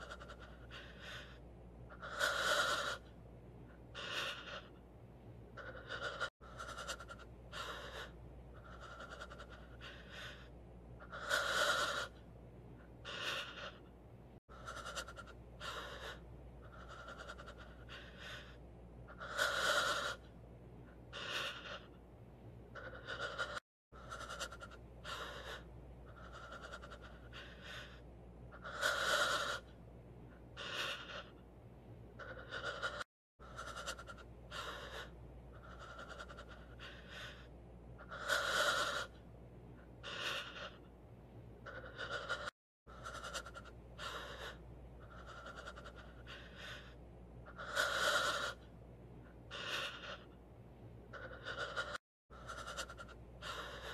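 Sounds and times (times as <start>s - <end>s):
person gasping and panting: 0.0s - 3.1s, 3.9s - 4.8s, 5.6s - 12.2s, 13.0s - 13.9s, 14.5s - 20.2s, 51.1s - 53.9s.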